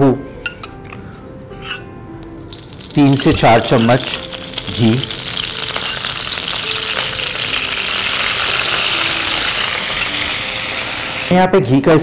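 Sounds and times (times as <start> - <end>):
fat sizzling in a pan: 2.2 - 11.3.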